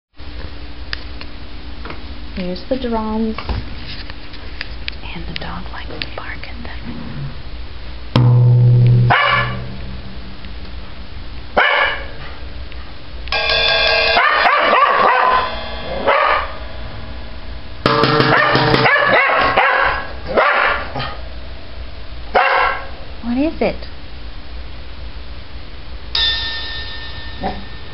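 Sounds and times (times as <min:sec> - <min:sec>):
drum struck: 0:08.2 - 0:10.9, 0:13.3 - 0:20.4, 0:26.2 - 0:27.9
dog barking: 0:09.1 - 0:09.7, 0:11.6 - 0:12.4, 0:14.1 - 0:16.6, 0:18.3 - 0:21.2, 0:22.3 - 0:22.9.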